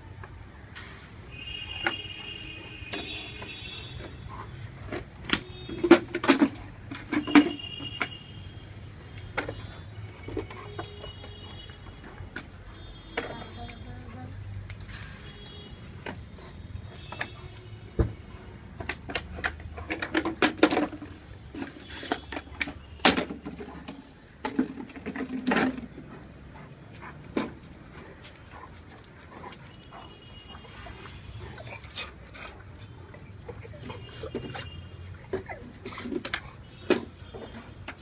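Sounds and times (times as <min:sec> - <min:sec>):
bottle knocking and clattering: 0:05.0 - 0:08.2.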